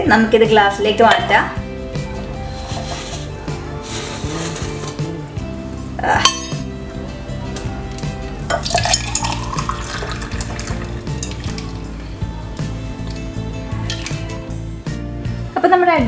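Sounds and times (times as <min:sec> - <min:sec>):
background music: 0:00.0 - 0:16.0
drink pouring into a glass: 0:07.6 - 0:12.1
metal lid clacking off: 0:13.0 - 0:14.5.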